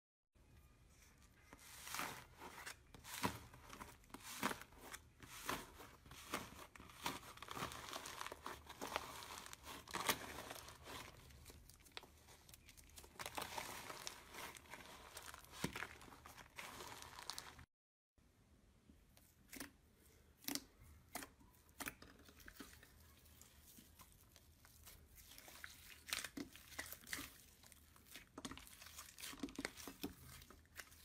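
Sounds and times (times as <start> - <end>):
foamy mass crunching and crackling: 1.6 - 17.7.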